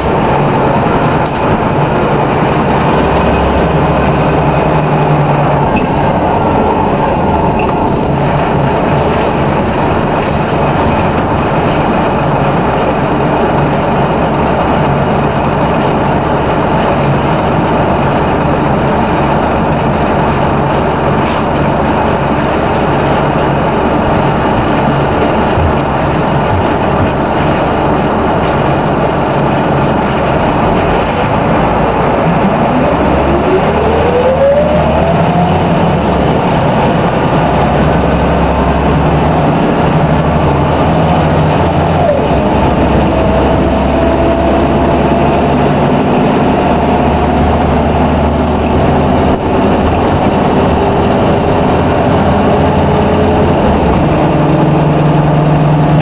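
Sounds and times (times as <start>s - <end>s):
rising whine: 0.0s - 10.2s, 29.8s - 56.0s
bus diesel engine running: 0.0s - 56.0s
road noise: 0.0s - 56.0s.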